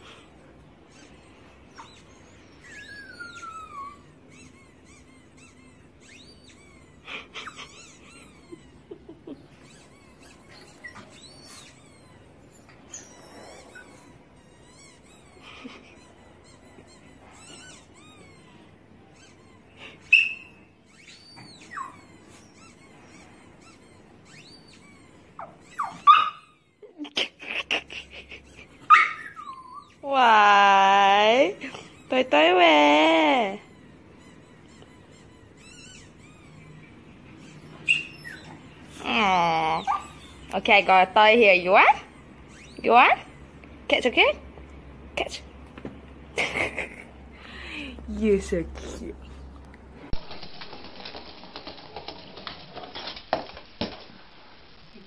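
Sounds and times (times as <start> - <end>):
dog whining: 0.0 - 30.5, 31.3 - 43.6
high-pitched squeaks: 0.9 - 8.8, 9.5 - 26.6, 33.6 - 39.1
dog yapping: 16.5 - 26.7, 28.8 - 30.0, 34.3 - 39.0, 39.8 - 40.5.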